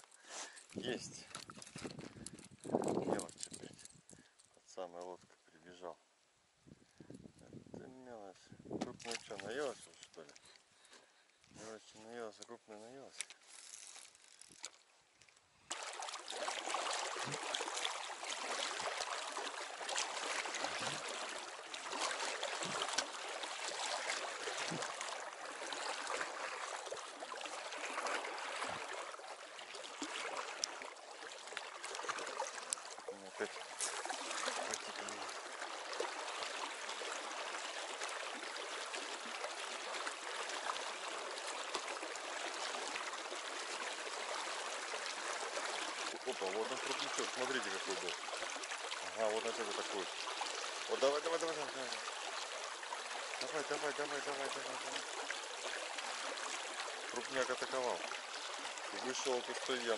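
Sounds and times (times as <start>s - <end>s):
river water rushing: 15.7s - 59.9s.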